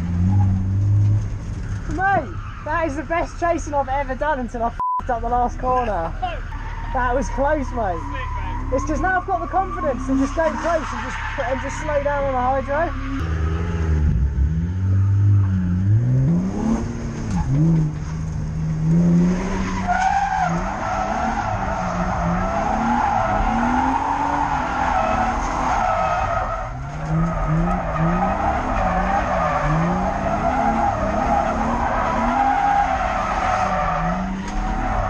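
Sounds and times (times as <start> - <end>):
car engine revving: 0.0 - 4.4, 5.6 - 35.0
tyres squealing: 6.2 - 13.2.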